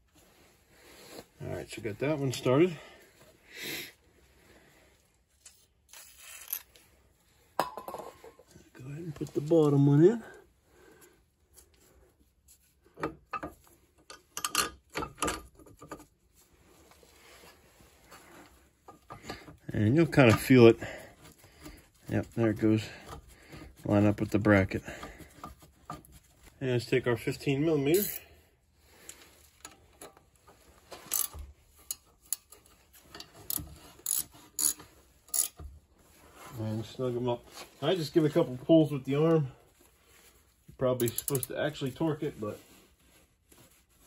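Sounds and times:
metallic clicks and knocks: 13.0 - 16.0
ratchet wrench clicking: 31.1 - 32.5, 33.5 - 35.6, 41.0 - 41.5.

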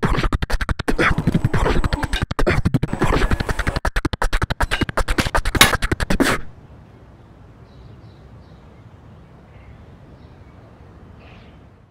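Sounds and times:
music with fast choppy beat: 0.0 - 6.5.

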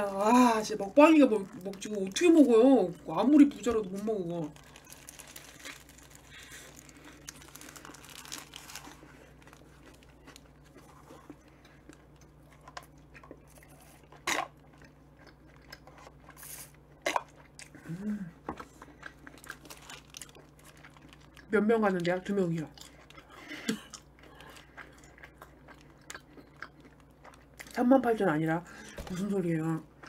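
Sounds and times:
paper wrapper crinkling: 4.0 - 11.1, 19.4 - 21.4
chewing sandwich: 4.5 - 21.5, 22.7 - 27.8
person humming: 17.8 - 18.4.

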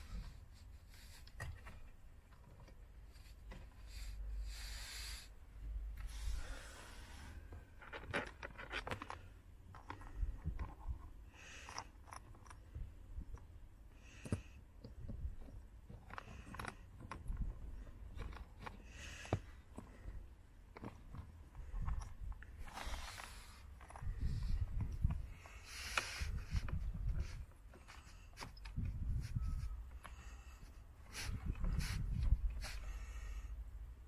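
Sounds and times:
plastic rubbing and scraping: 6.0 - 11.2, 14.2 - 32.9
plastic parts clicking: 7.8 - 13.5, 14.2 - 20.0.

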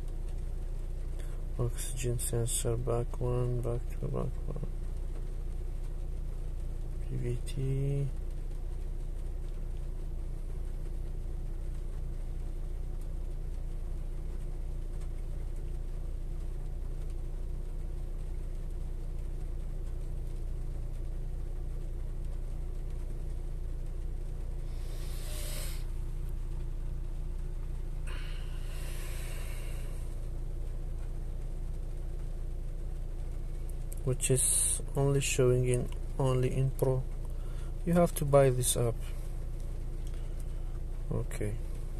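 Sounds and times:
car engine idling: 0.0 - 41.9
brief hiss: 24.6 - 26.0.

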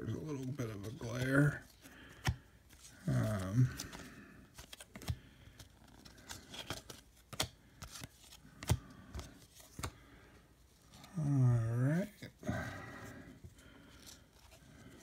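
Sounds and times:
cards flipped by hand: 0.3 - 11.0.

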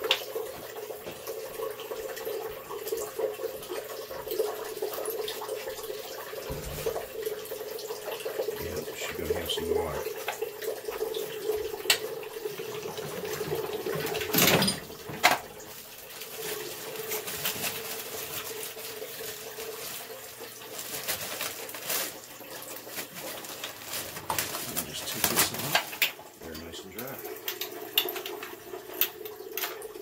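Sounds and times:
plastic packaging crinkling: 15.6 - 26.1.

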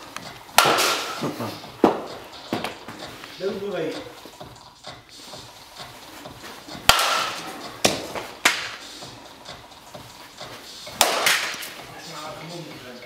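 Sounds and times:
bat hitting balls: 0.1 - 3.1, 6.7 - 9.6, 10.9 - 11.8
balls striking cage: 0.5 - 3.0, 6.8 - 8.9, 10.9 - 11.8.

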